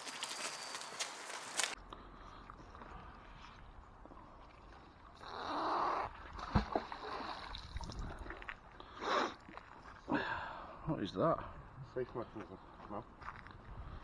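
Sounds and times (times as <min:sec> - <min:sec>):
water splashing: 0:06.0 - 0:08.7.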